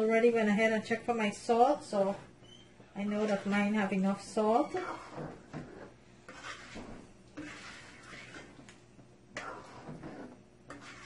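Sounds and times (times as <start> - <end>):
spoon stirring curry in a pot: 4.8 - 8.7, 9.3 - 11.0.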